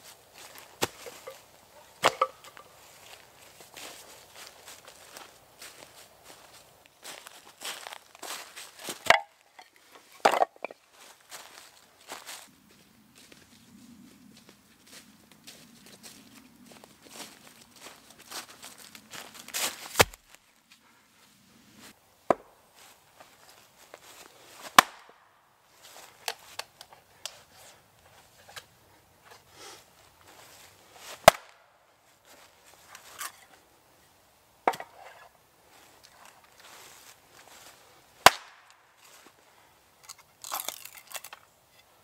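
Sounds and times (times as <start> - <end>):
hatchet splitting firewood: 0.7 - 2.7, 8.8 - 10.8, 19.8 - 20.4, 22.3 - 22.6, 24.6 - 25.2, 31.2 - 31.6, 34.6 - 35.3, 38.2 - 38.8, 40.0 - 41.5
footsteps through fallen leaves: 2.5 - 9.0, 14.8 - 20.5.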